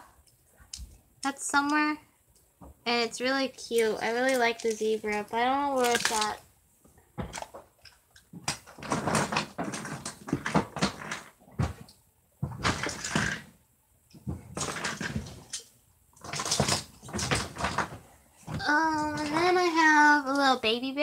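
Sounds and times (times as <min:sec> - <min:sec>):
plastic toys rattling: 0:03.7 - 0:06.4, 0:07.2 - 0:11.4, 0:12.6 - 0:13.5, 0:14.5 - 0:18.0.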